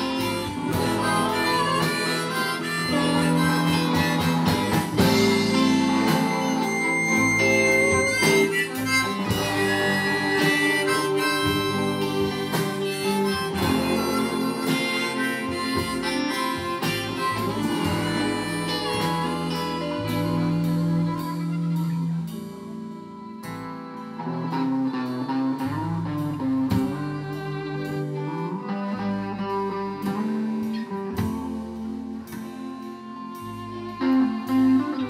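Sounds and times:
bowed fiddle: 0:00.0 - 0:35.0
harmonica: 0:00.0 - 0:35.0
strummed acoustic guitar: 0:00.0 - 0:35.0.

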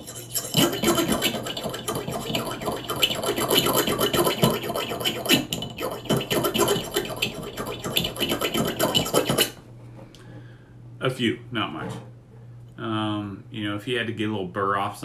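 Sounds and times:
metal file rasping on steel: 0:00.0 - 0:09.6.

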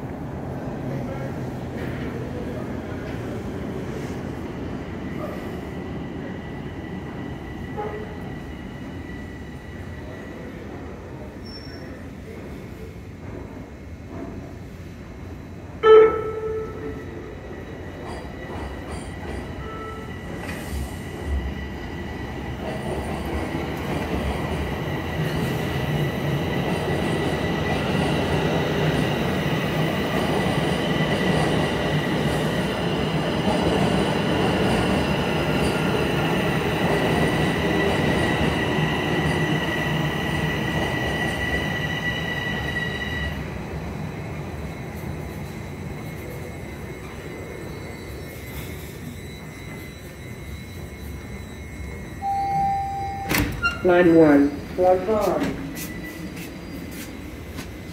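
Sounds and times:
subway train rumbling: 0:00.0 - 0:57.9
high-pitched brake squeal: 0:11.4 - 0:12.0, 0:19.0 - 0:20.9, 0:39.2 - 0:43.4, 0:44.7 - 0:57.3
train horn tone: 0:15.8 - 0:17.1.

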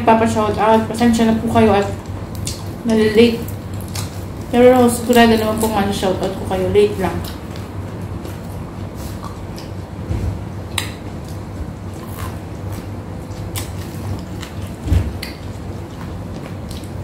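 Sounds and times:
steady low hum: 0:00.0 - 0:17.0
crunching food: 0:01.8 - 0:06.4, 0:10.6 - 0:17.0.

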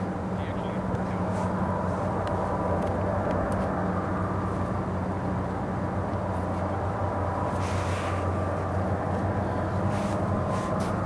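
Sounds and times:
diesel locomotive droning: 0:00.0 - 0:11.0.

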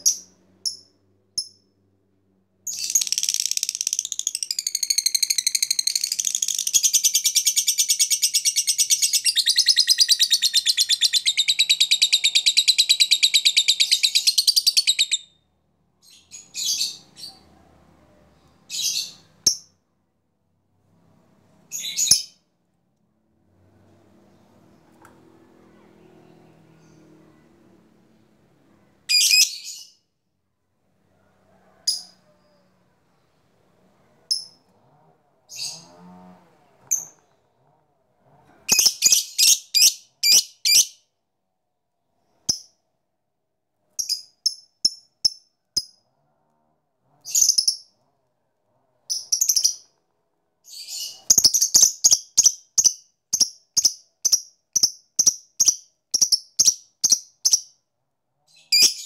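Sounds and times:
lovebird chirping: 0:00.0 - 0:01.6, 0:02.6 - 0:15.4, 0:21.7 - 0:22.4, 0:29.1 - 0:30.0, 0:49.1 - 0:49.9, 0:50.7 - 0:57.8, 0:58.5 - 0:59.0.

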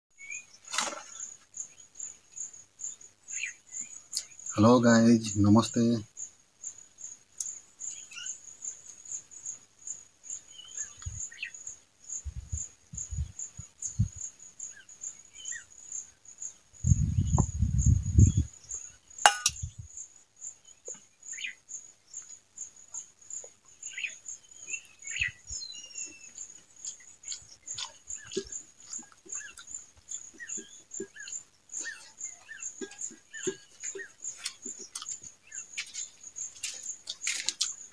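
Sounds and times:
insect chirping: 0:00.1 - 0:37.9
eating and chewing sounds: 0:24.6 - 0:37.9.

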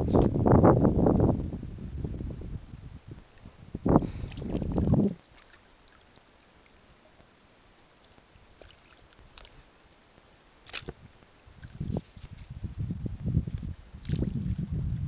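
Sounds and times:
shallow water sloshing: 0:03.4 - 0:07.3, 0:07.9 - 0:10.0, 0:10.6 - 0:12.6.

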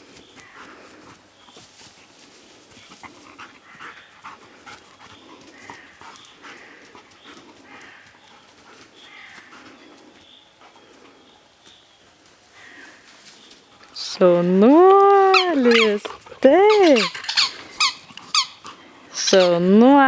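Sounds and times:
dog panting: 0:02.7 - 0:11.4, 0:13.6 - 0:19.6.

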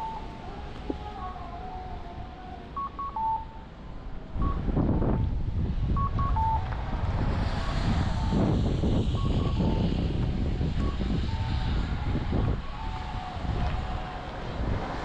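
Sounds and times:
electronic beep signal: 0:00.0 - 0:00.3, 0:02.8 - 0:03.6, 0:04.4 - 0:05.3, 0:06.0 - 0:06.6, 0:09.2 - 0:10.0
low rumble of passing vehicle: 0:00.0 - 0:15.0.

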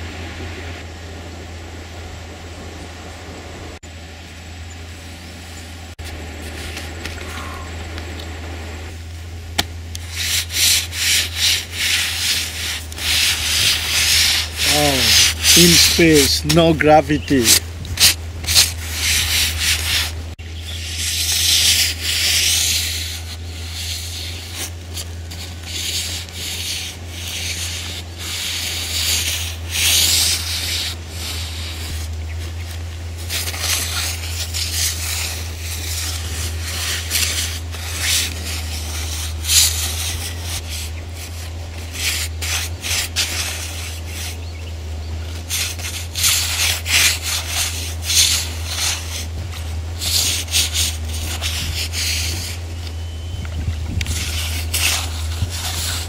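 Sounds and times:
steady low hum: 0:00.0 - 0:56.0
brush scrubbing on canvas: 0:10.0 - 0:44.4, 0:45.2 - 0:52.7, 0:54.0 - 0:56.0.

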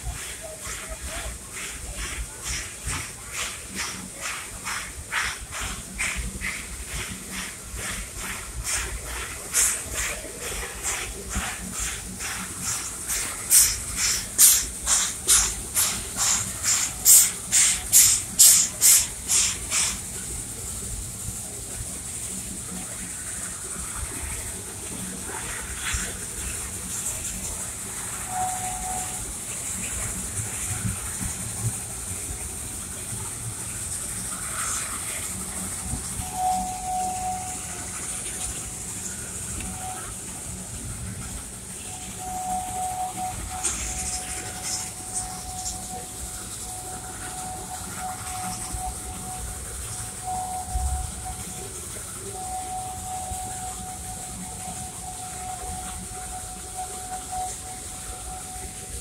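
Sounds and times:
steam locomotive hissing: 0:00.0 - 0:59.0
train rumbling on track: 0:00.0 - 0:59.0
short high tone: 0:36.2 - 0:40.2, 0:41.8 - 0:59.0.

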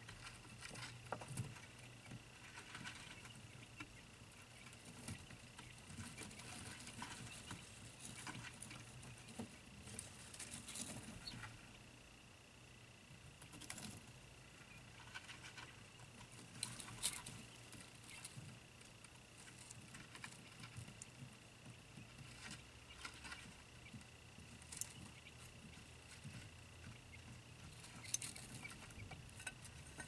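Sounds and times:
chicks scratching and tapping: 0:00.0 - 0:11.9, 0:13.1 - 0:30.0.

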